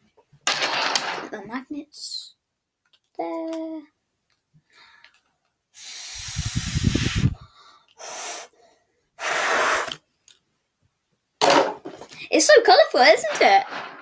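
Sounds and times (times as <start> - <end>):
breathy hiss of blown air: 5.8 - 8.6, 9.2 - 10.0.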